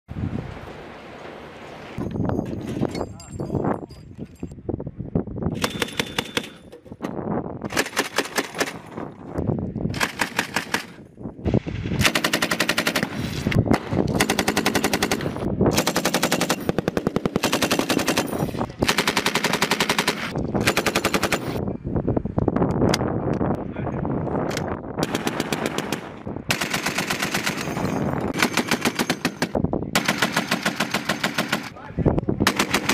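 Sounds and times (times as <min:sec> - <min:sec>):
machine gun automatic fire: 0:05.5 - 0:06.6, 0:10.0 - 0:11.0, 0:12.0 - 0:21.6, 0:25.0 - 0:31.7, 0:32.4 - 0:32.9.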